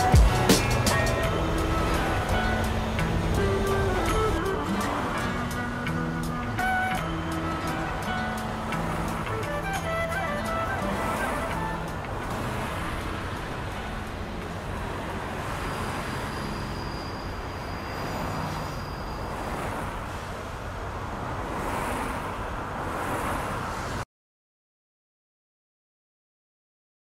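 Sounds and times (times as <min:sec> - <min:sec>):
city road traffic: 0:00.0 - 0:24.1
faint high whine: 0:15.7 - 0:19.4.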